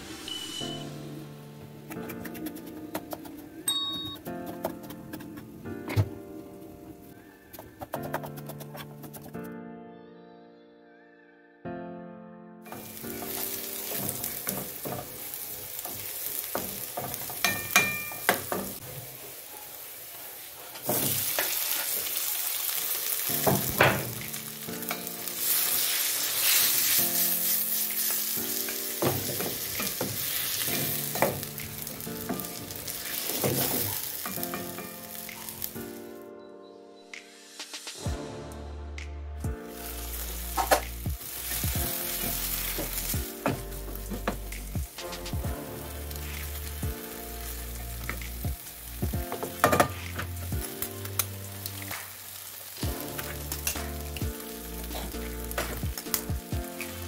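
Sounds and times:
vegetables sizzling in a pan: 0:12.7 - 0:36.0, 0:39.7 - 0:57.0.

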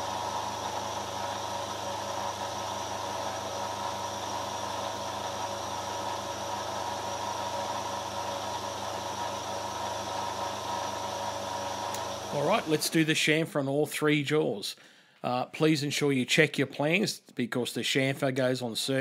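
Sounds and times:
milling machine humming: 0:00.0 - 0:13.1.

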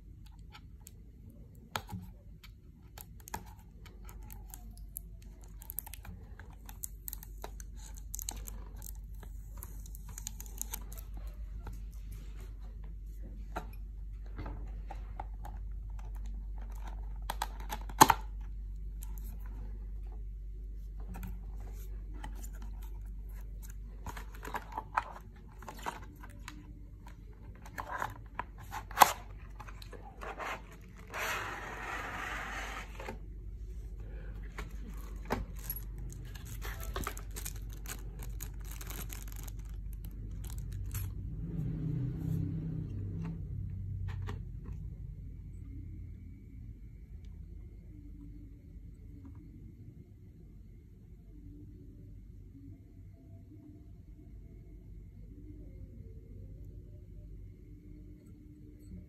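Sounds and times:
packaging tearing: 0:35.6 - 0:40.8.

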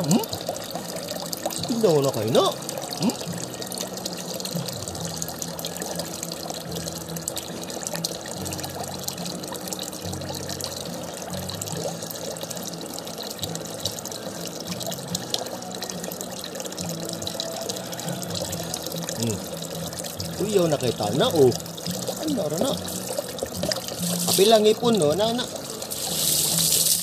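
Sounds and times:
rain falling and splashing: 0:18.6 - 0:27.0.

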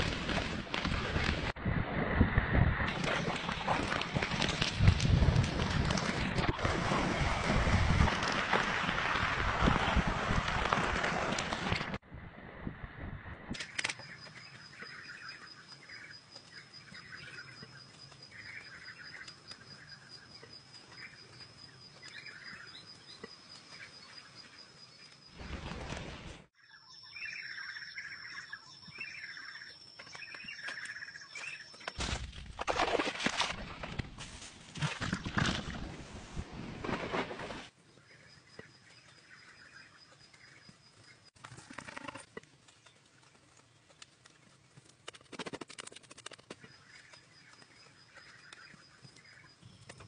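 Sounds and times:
loud rushing wind: 0:01.5 - 0:02.9
small birds chirping: 0:46.3 - 0:50.0.

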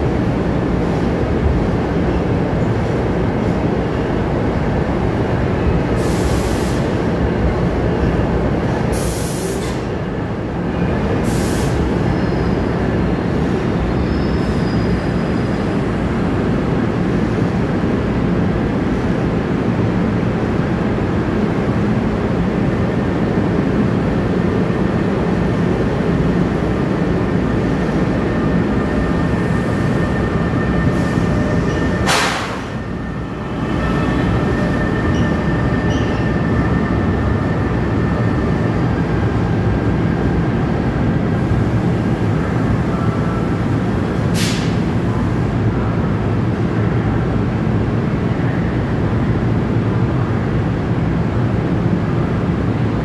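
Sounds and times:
train coaches rumbling: 0:00.0 - 0:53.0
wheels squealing on rail: 0:11.6 - 0:12.8, 0:13.8 - 0:16.1, 0:28.0 - 0:37.4
brief hiss: 0:44.4 - 0:44.8.

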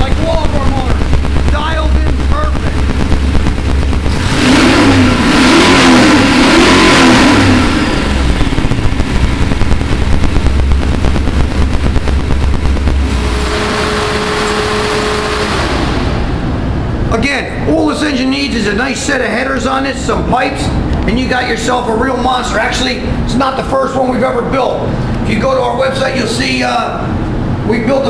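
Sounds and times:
car engine revving and idling: 0:00.0 - 0:17.1.

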